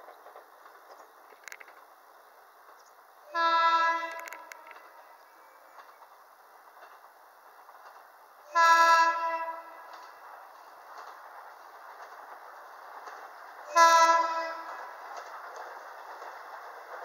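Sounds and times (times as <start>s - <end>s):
train running noise: 0.0s - 17.0s
train horn blasts: 3.3s - 5.2s, 8.5s - 9.9s, 13.7s - 14.8s.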